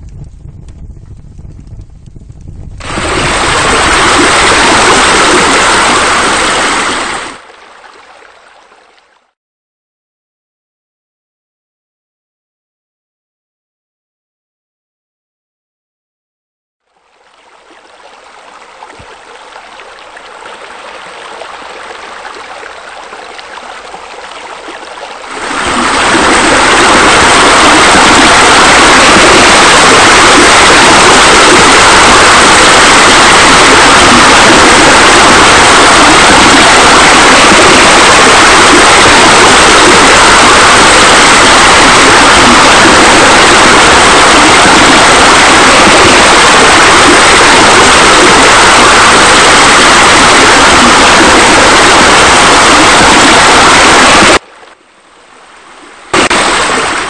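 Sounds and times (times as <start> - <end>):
fountain water rushing and splashing: 2.8 - 9.4, 16.9 - 54.4, 56.1 - 57.0.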